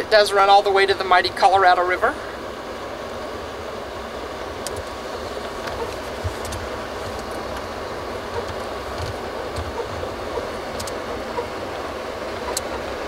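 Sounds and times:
vehicle rumble and road noise: 0:00.0 - 0:13.0
small clicks and rattles: 0:05.5 - 0:07.7, 0:08.3 - 0:10.0, 0:10.7 - 0:11.0.

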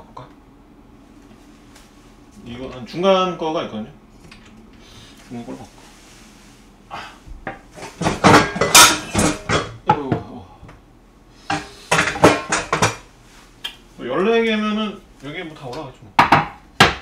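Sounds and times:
plates clattering and clinking: 0:07.5 - 0:10.0, 0:11.5 - 0:13.0.

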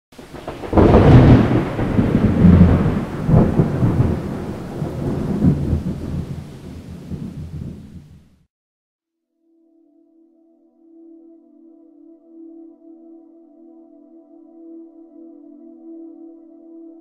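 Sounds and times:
steady rain: 0:00.2 - 0:08.4
thunder rolling: 0:00.2 - 0:08.4.

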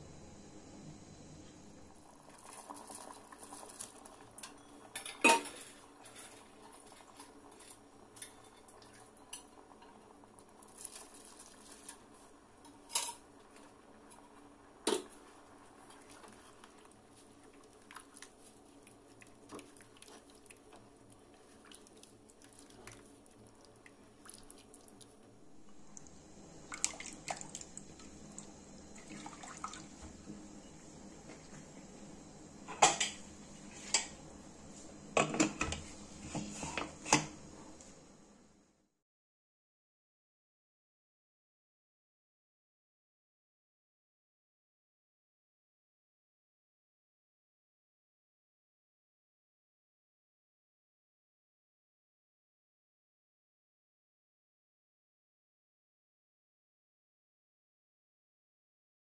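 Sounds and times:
broth bubbling: 0:18.8 - 0:30.2.

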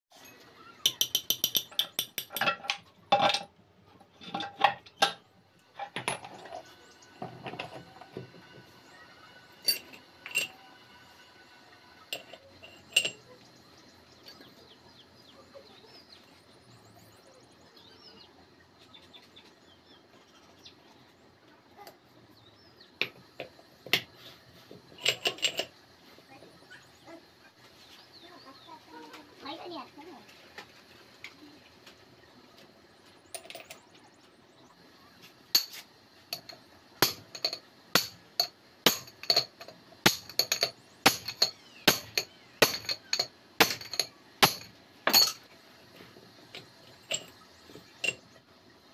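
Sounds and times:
steel gears clinking: 0:09.5 - 0:10.7, 0:12.1 - 0:13.4, 0:35.5 - 0:45.5, 0:46.6 - 0:48.4.

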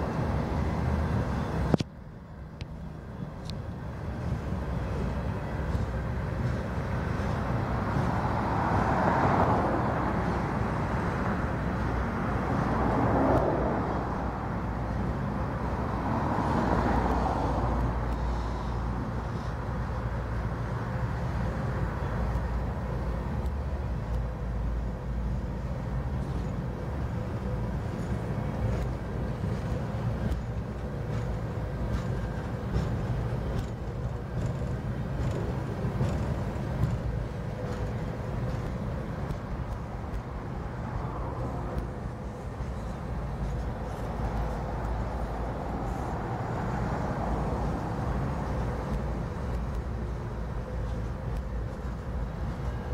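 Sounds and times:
freight train rolling past: 0:00.0 - 0:52.9.

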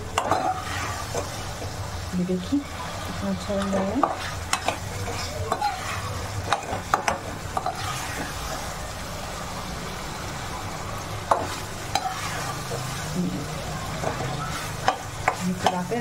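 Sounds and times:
food sizzling in oil: 0:00.0 - 0:16.0
spoon scraping metal pot: 0:03.6 - 0:08.3.

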